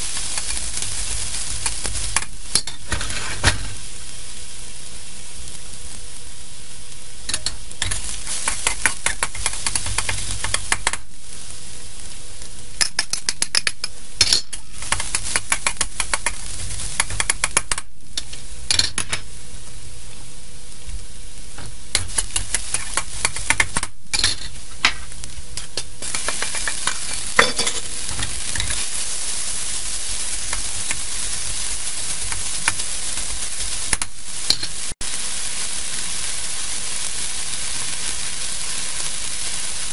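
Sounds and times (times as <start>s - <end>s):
spatula scraping a wok: 0.0s - 3.9s, 7.3s - 10.7s, 22.0s - 34.9s
garlic sizzling in hot oil: 0.0s - 39.9s.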